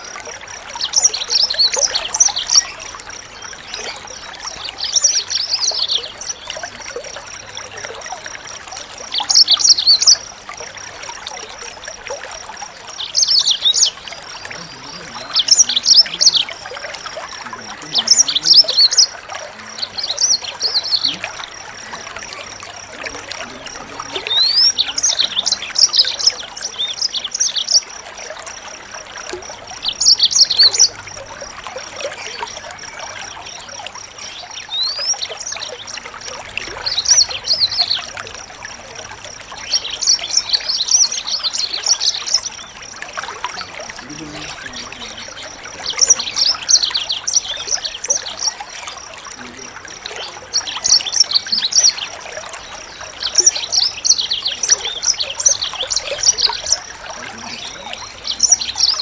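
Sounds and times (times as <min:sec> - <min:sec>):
constant thin high tone: 0:00.0 - 0:59.0
trickle of water: 0:00.0 - 0:59.0
songbird chirping and whistling: 0:13.0 - 0:22.4.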